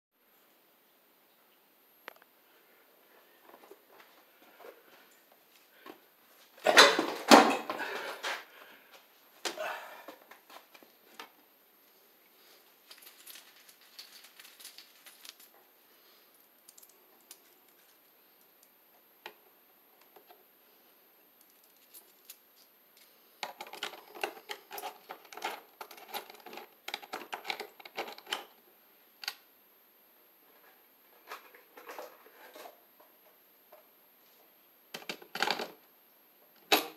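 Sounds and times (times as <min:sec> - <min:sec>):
electrical wires clicking and rattling: 0:12.8 - 0:15.7, 0:21.4 - 0:28.6.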